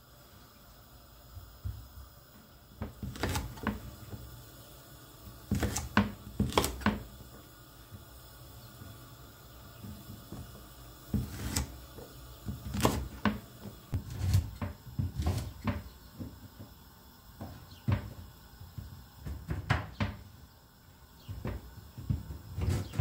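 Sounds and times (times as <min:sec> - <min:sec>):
knife chopping on wooden board: 0:02.9 - 0:03.8, 0:05.5 - 0:07.1, 0:12.7 - 0:13.4, 0:14.0 - 0:15.8.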